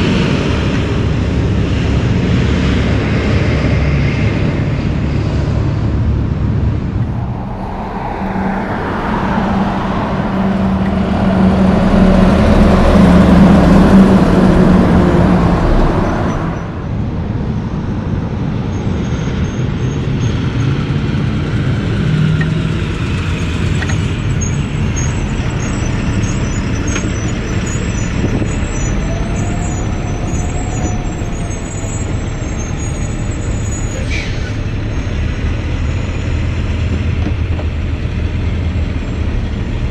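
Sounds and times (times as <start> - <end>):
heavy vehicle engine hum: 0.0 - 39.9
highway traffic passing: 0.0 - 39.9.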